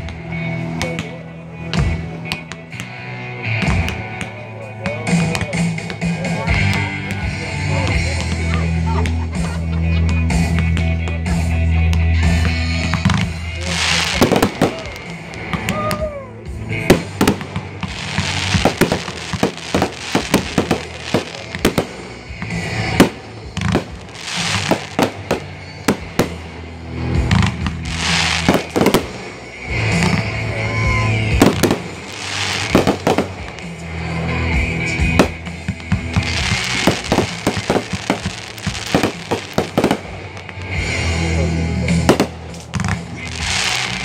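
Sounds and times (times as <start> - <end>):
fireworks bangs and pops: 0.0 - 30.6, 31.3 - 44.0
music: 0.0 - 44.0
fireworks hissing: 12.9 - 15.8, 16.5 - 44.0.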